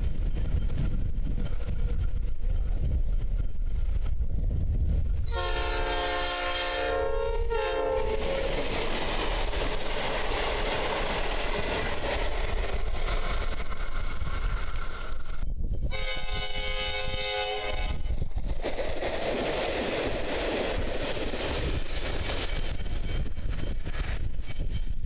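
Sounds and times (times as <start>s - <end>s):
rumble of approaching train: 0.0s - 25.0s
locomotive air horn: 5.3s - 8.5s, 15.9s - 18.1s.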